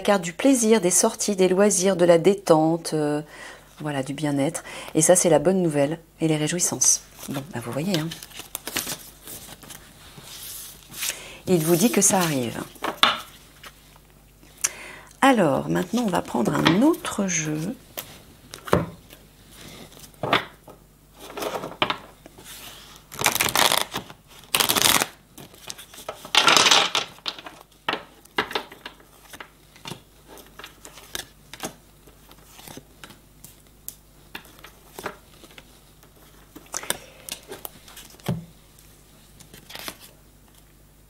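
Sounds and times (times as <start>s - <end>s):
cards being shuffled: 7.1s - 14.0s, 21.2s - 40.7s.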